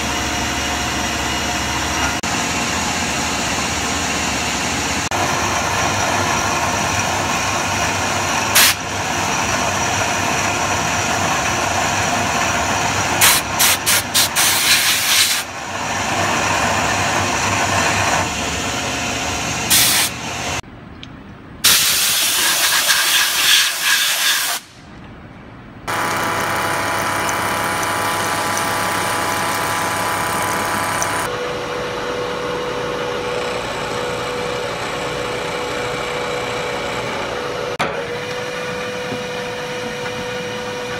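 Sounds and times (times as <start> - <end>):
steady whine: 25.8 - 40.9
coolant hiss: 25.9 - 31.3
milling machine cutting metal: 25.9 - 31.4.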